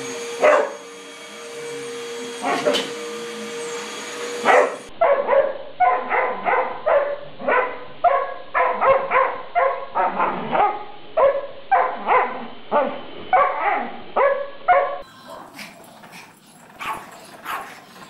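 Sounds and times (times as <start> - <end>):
dog barking: 0.4 - 0.8, 2.4 - 2.9, 4.4 - 15.5, 16.8 - 17.8.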